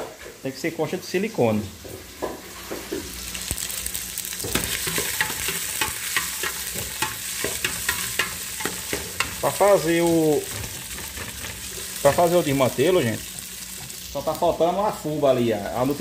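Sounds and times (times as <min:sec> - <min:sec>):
pork fat sizzling in oil: 0:00.0 - 0:16.0
person speaking: 0:09.4 - 0:10.5, 0:12.0 - 0:13.2.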